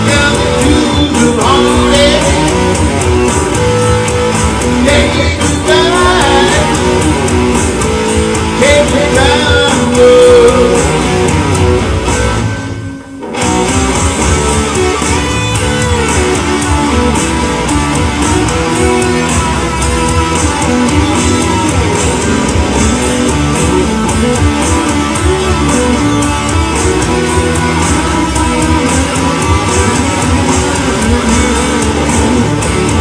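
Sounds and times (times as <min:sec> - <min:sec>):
electric guitar lead lines: 0:00.0 - 0:33.0
music backing: 0:00.0 - 0:33.0.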